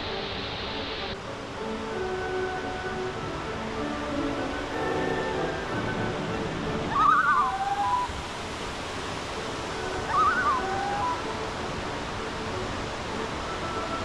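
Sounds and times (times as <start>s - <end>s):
creek water rushing: 0.0s - 14.0s
songbird trilling and whistling: 6.9s - 8.1s, 10.1s - 11.2s.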